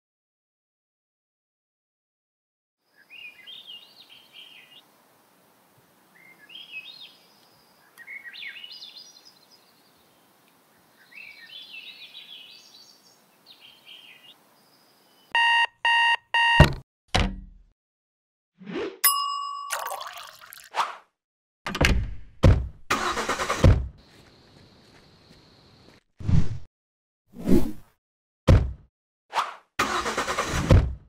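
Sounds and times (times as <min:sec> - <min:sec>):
birds chirping: 0:02.9 - 0:05.0, 0:06.0 - 0:15.6, 0:24.0 - 0:26.0.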